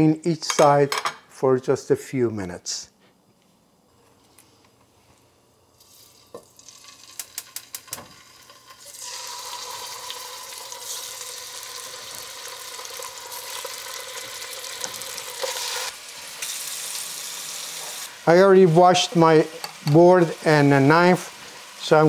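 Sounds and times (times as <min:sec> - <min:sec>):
chicken frying in oil: 0:06.0 - 0:19.5.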